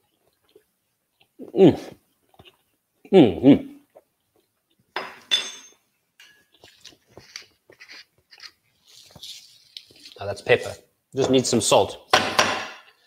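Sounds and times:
crockery clattering: 0:05.0 - 0:06.5.

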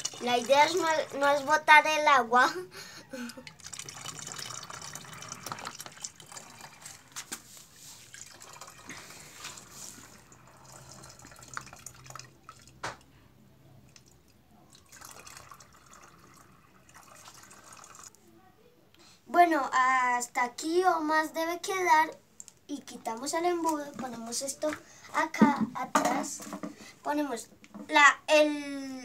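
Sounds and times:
water dripping: 0:00.0 - 0:01.9, 0:03.1 - 0:07.4, 0:08.0 - 0:13.1, 0:13.8 - 0:18.2
water stream splashing and trickling: 0:00.0 - 0:02.0, 0:03.1 - 0:13.1, 0:13.8 - 0:18.2.

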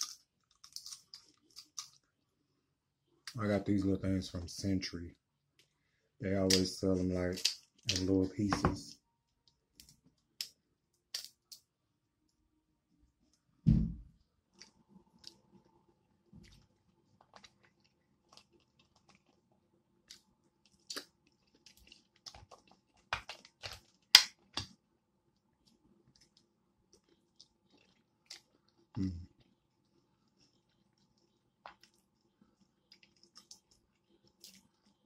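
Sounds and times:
crab shell cracking by hand: 0:09.8 - 0:11.6, 0:20.1 - 0:24.8
chewing and mouth sounds: 0:16.4 - 0:24.6, 0:25.6 - 0:35.0.

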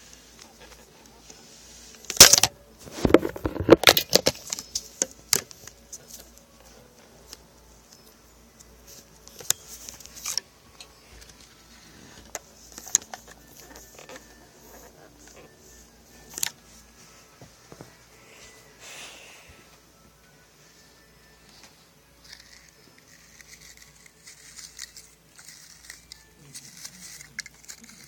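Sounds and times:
small hard objects clattering: 0:02.1 - 0:05.7.

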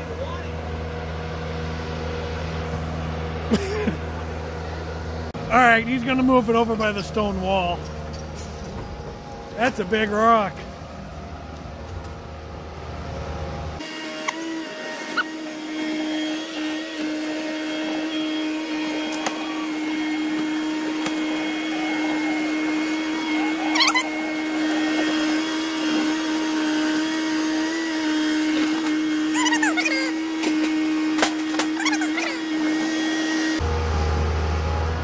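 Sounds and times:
excavator engine whining: 0:00.0 - 0:35.0
excavator squeals: 0:14.3 - 0:16.7, 0:21.3 - 0:25.7, 0:29.1 - 0:30.4, 0:31.6 - 0:33.6.

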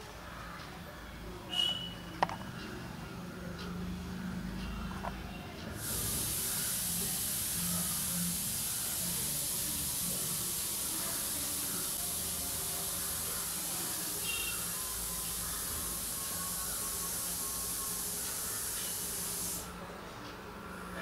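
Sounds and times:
loud high-pitched hiss: 0:05.8 - 0:19.7.

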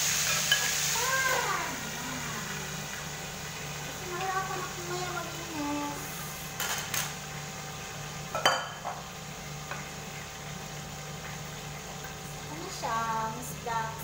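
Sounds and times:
metal cookware clinking: 0:00.3 - 0:00.8, 0:08.3 - 0:09.0.

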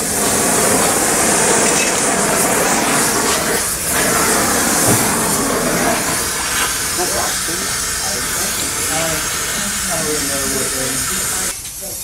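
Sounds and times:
gas torch flame hissing: 0:00.0 - 0:12.0.

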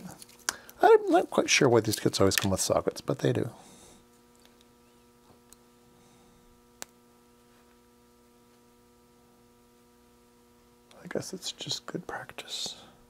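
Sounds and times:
faint electrical hum: 0:00.0 - 0:13.0.

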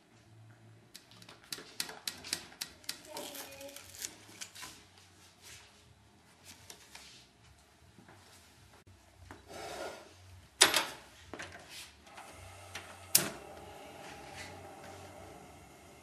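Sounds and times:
gas flame hissing: 0:09.4 - 0:10.3, 0:12.0 - 0:16.0
gas burner ignition click: 0:12.1 - 0:13.7.

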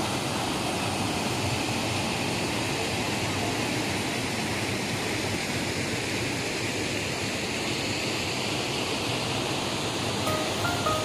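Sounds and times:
waterfall rushing: 0:09.4 - 0:11.0.

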